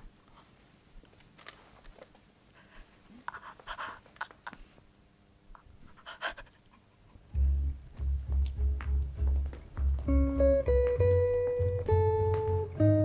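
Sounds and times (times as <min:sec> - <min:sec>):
deep bass: 0:07.4 - 0:13.0
plucked guitar music: 0:07.4 - 0:13.0.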